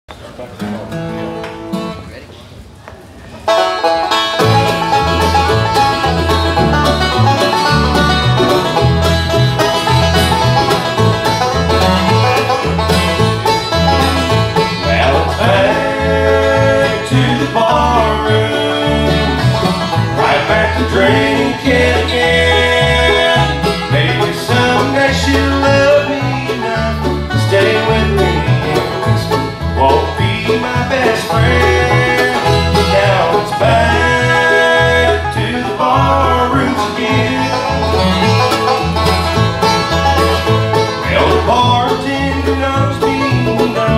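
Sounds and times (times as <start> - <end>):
acoustic guitar: 0.1 - 43.9
mandolin: 3.3 - 43.9
banjo picking: 3.4 - 43.9
fiddle: 3.5 - 43.9
upright bass: 3.5 - 43.9.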